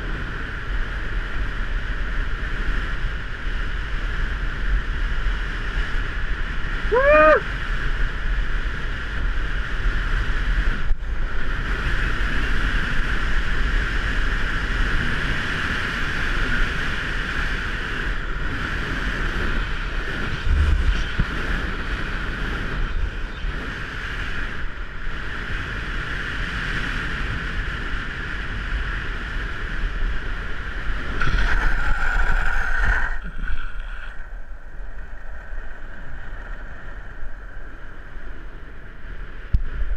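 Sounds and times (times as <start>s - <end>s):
longboard wheels rolling on asphalt: 0.0s - 39.9s
wind on microphone: 0.0s - 39.9s
harsh wheel sliding: 30.9s - 34.6s
wheel squeal: 31.2s - 34.3s.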